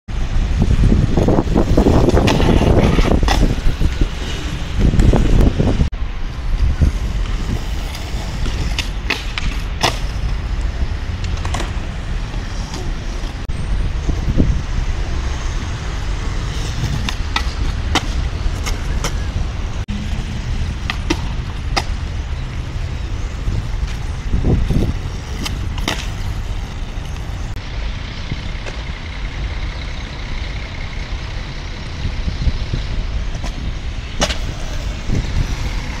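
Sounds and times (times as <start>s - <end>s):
skateboard wheels rolling on concrete: 0.1s - 36.0s
skateboard clacks: 1.6s - 5.6s, 7.1s - 13.4s, 16.3s - 19.5s, 20.7s - 22.2s, 23.7s - 27.5s, 32.8s - 36.0s.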